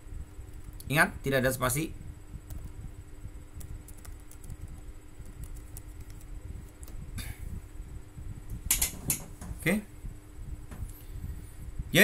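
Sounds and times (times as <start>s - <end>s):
low steady hum: 0.0s - 12.0s
keyboard key clicks: 8.7s - 9.2s.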